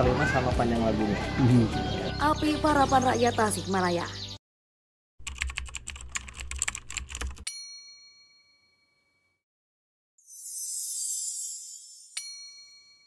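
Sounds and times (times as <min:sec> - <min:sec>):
keyboard typing clicks: 0:05.2 - 0:07.4.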